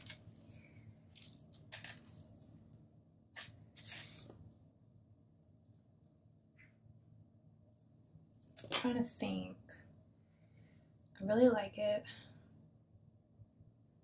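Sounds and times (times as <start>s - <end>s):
plastic sheet rustling and crinkling: 0.0s - 2.7s.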